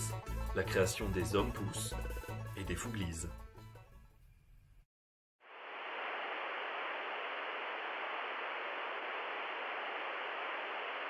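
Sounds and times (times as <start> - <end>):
static hiss: 5.4 - 11.0.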